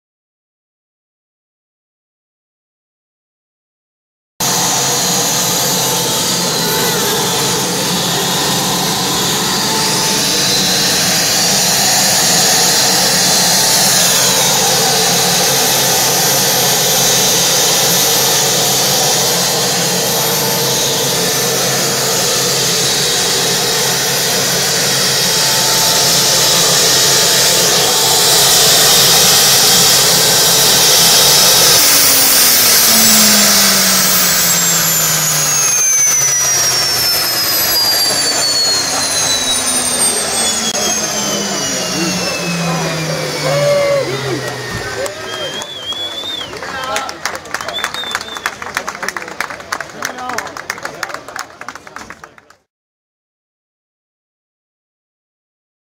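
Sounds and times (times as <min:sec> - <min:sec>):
jet engine whine and hiss: 0:04.4 - 0:46.5.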